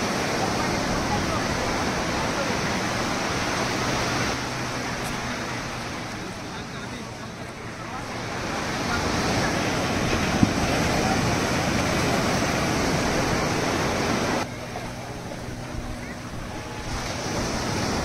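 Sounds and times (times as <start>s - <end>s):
surf washing up beach: 0.0s - 18.0s
wind buffeting microphone: 8.3s - 18.0s.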